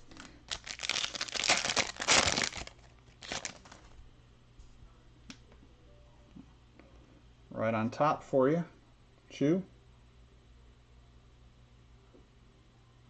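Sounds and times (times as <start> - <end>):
foil wrapper tearing and crinkling: 0.0 - 3.9.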